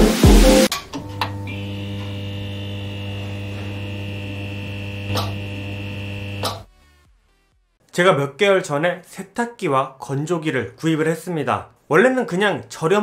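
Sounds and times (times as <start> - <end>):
neon sign hum and buzz: 1.0 - 6.7.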